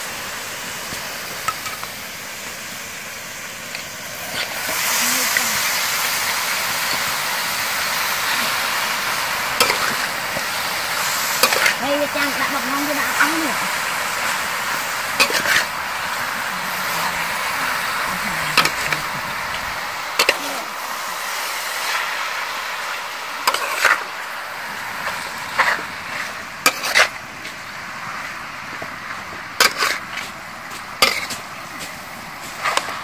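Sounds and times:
food sizzling in a wok: 0.0s - 33.0s
metal spatula scraping pan: 9.6s - 10.1s, 11.4s - 12.4s, 15.2s - 15.7s, 23.5s - 24.0s, 25.6s - 27.2s, 29.6s - 30.1s, 31.0s - 31.4s.

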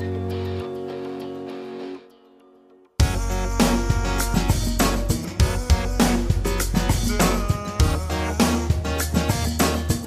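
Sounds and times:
drums beat: 3.0s - 10.0s.

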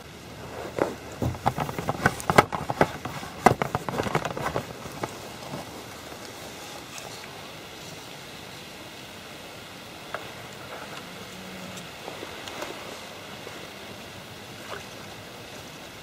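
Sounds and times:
faint background noise: 0.0s - 16.0s
handling clicks and crackles: 0.7s - 7.3s.

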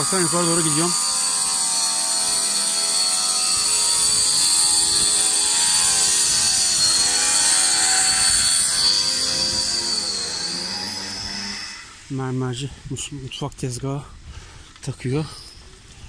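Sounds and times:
electric saw whining through stone: 0.0s - 12.2s.

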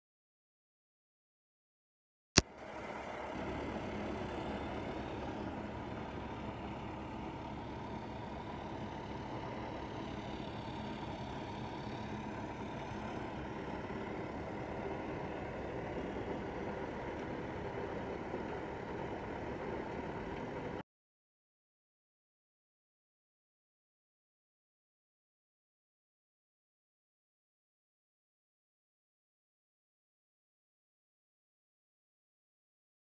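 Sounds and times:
asphalt plant machinery running: 2.4s - 20.8s.

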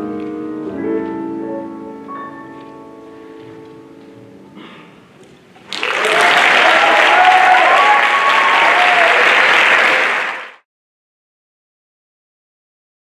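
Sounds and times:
audience applauding: 5.6s - 10.6s
shouts and whoops: 5.8s - 10.0s.

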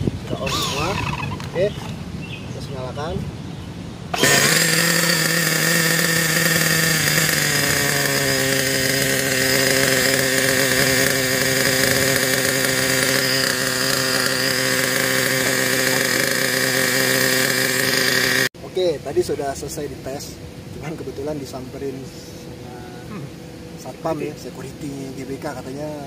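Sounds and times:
model buggy engine idling: 4.2s - 18.5s.

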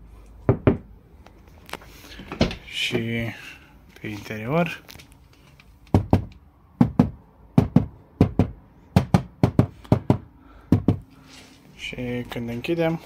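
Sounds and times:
knuckles knocking on plastic panel: 5.9s - 11.1s.

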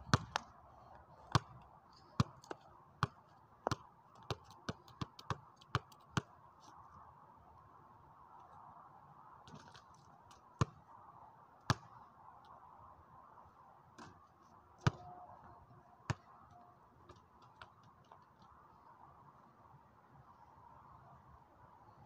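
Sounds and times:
basketball bouncing on pavement: 0.0s - 0.5s, 1.2s - 1.6s, 2.2s - 6.4s, 10.6s - 10.9s, 11.7s - 12.0s, 14.8s - 16.4s
basketball hitting hoop: 14.8s - 15.0s.

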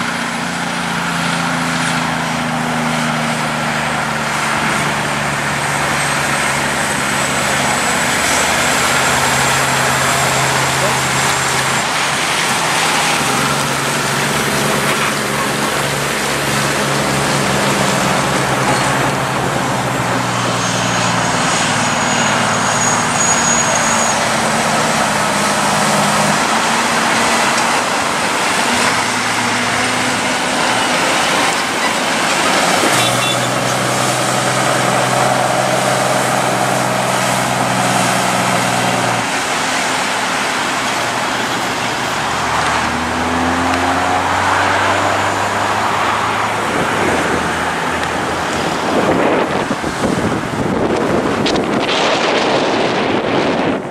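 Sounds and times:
heavy diesel truck engines: 0.0s - 53.9s
tyre and road noise: 0.0s - 53.9s.

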